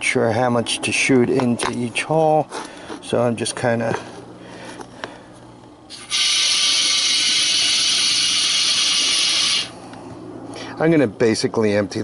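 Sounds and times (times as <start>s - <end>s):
aerosol foam spraying hiss: 5.9s - 9.7s.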